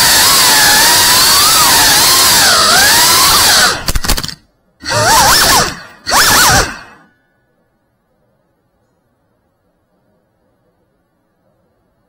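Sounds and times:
drone motors whining: 0.0 - 4.2, 4.8 - 7.1.

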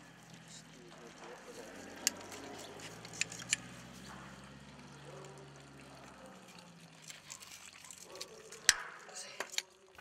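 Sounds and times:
faint water trickle: 0.0 - 10.0
metal tool clicking on pipe fittings: 3.0 - 3.7.

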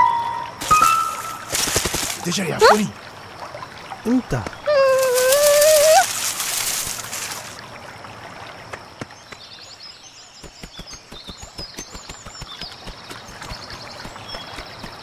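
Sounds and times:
birds chirping: 9.0 - 15.0.

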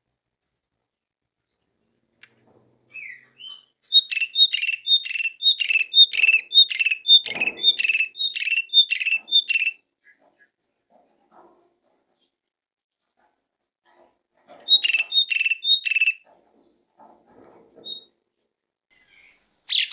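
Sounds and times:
starling calling: 2.9 - 9.8, 14.6 - 16.2.

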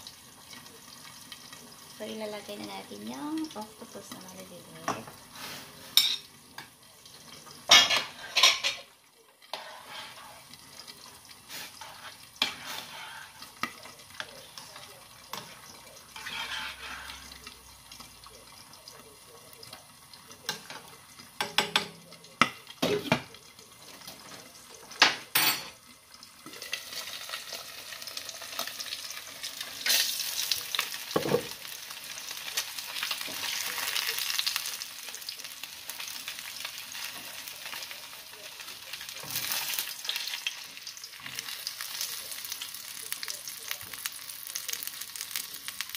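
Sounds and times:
food cooking hiss: 0.0 - 45.9
utensils clinking on soup pot: 7.7 - 8.9.

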